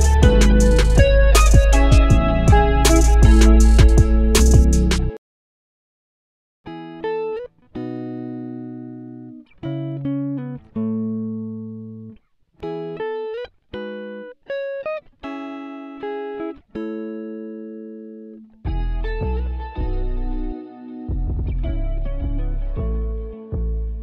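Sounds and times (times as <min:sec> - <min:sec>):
plucked guitar music: 0:00.0 - 0:05.2, 0:06.7 - 0:24.0.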